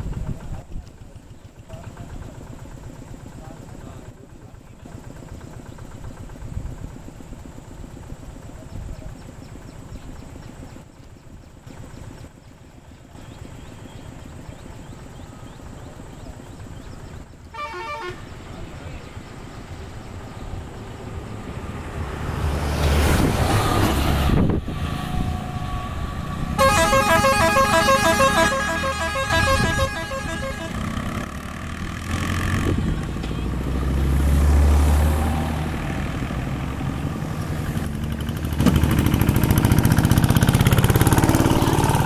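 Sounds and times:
bus passing: 0.0s - 42.0s
beeping horn: 17.5s - 18.4s, 25.0s - 31.4s.

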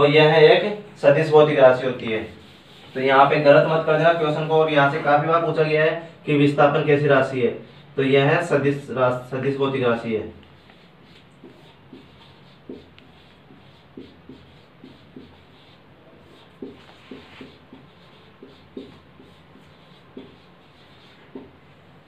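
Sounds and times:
marker pen squeaking on whiteboard: 10.4s - 21.7s.

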